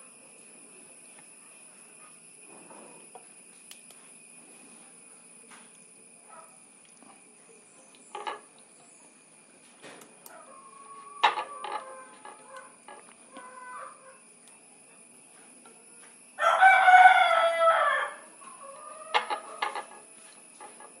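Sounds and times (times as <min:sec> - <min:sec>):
rooster crowing: 0:10.4 - 0:12.8, 0:16.4 - 0:19.9.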